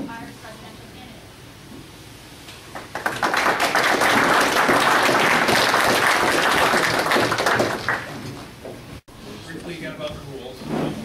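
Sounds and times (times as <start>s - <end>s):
audience applauding: 2.7s - 8.4s.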